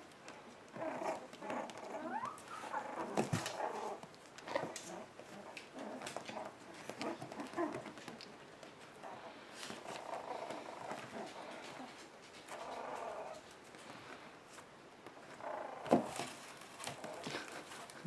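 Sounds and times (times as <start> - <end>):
small paws scratching on bedding: 0.2 - 18.0
puppies whining and squeaking: 1.0 - 4.0.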